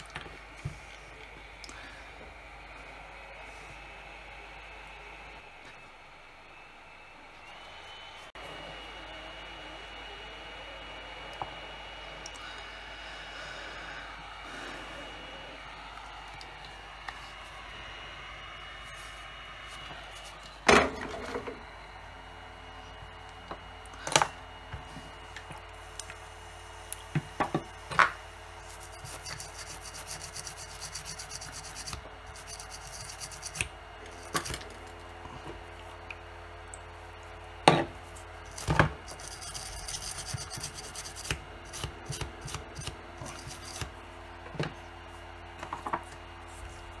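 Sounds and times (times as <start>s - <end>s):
background hum: 0.0s - 47.0s
rubbing and scraping: 28.6s - 33.6s, 38.5s - 43.9s.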